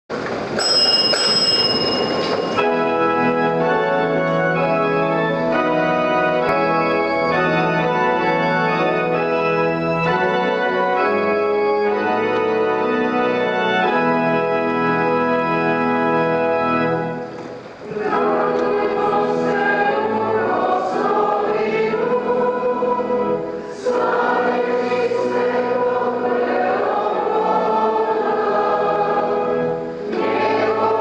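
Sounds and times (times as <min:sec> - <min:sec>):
noisy rush with ringing tone: 0:00.6 - 0:03.0
church organ chords: 0:02.3 - 0:31.0.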